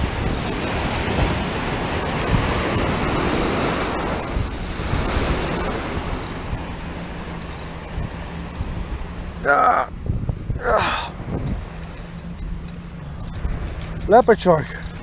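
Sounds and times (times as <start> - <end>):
surf breaking against seawall: 0.0 - 7.2
wind buffeting microphone: 0.0 - 15.0.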